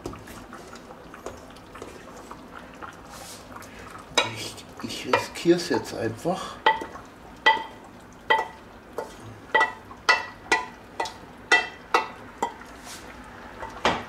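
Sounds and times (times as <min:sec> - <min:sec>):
wooden spoon knocking in saucepan: 0:06.6 - 0:12.6.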